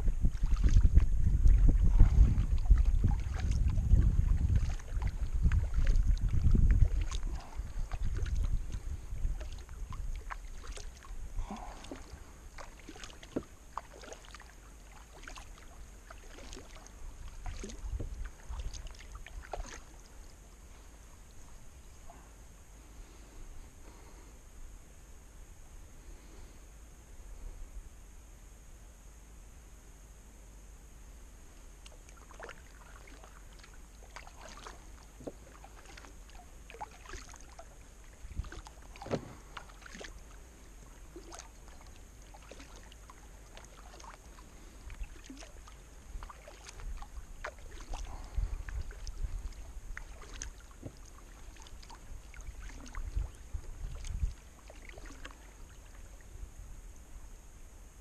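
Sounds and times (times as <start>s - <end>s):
paddle splashing into water: 0.2s - 20.8s, 31.8s - 56.3s.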